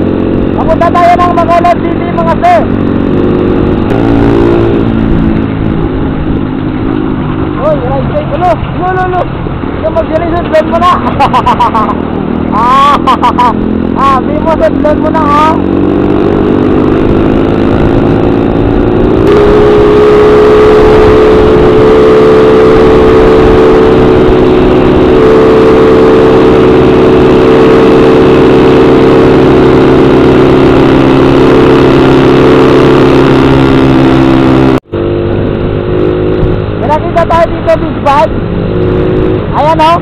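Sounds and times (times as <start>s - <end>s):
motorcycle engine cruising: 0.0s - 40.0s
road and wind noise: 0.0s - 40.0s.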